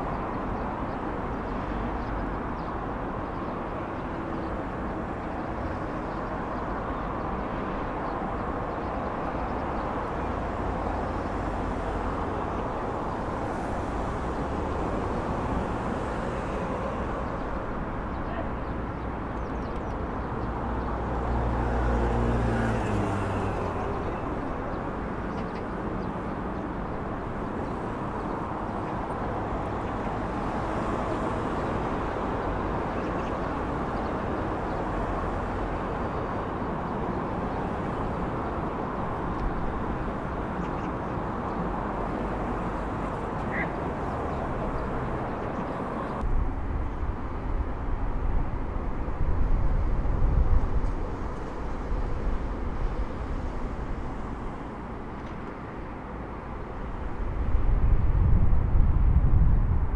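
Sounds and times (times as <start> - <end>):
road traffic noise: 0.0 - 59.9
vehicle passing: 20.4 - 26.5.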